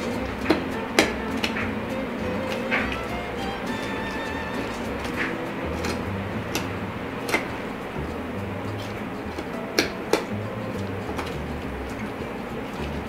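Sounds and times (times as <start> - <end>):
soft background music: 0.0 - 13.0
knife clicking against bone: 4.7 - 7.6.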